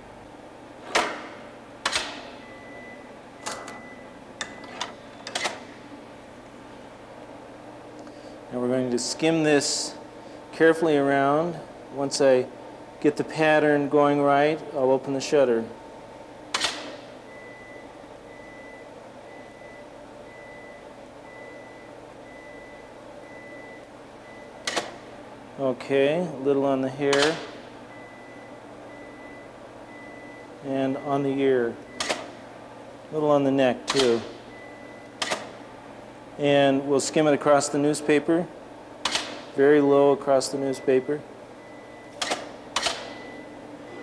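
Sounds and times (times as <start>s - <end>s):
equipment clicks and knocks: 0.9s - 2.3s, 32.0s - 32.3s, 35.2s - 35.6s, 39.0s - 39.5s, 42.2s - 43.2s
sharp click: 16.5s - 17.0s, 24.6s - 25.0s, 27.1s - 27.6s, 32.0s - 32.3s, 33.9s - 34.4s, 35.2s - 35.5s, 39.0s - 39.5s, 42.2s - 43.2s.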